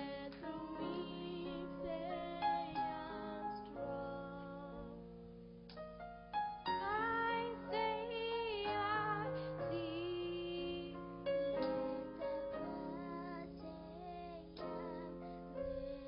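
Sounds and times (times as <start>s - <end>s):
girls singing together: 0.0s - 3.7s
sustained keyboard accompaniment: 0.0s - 16.0s.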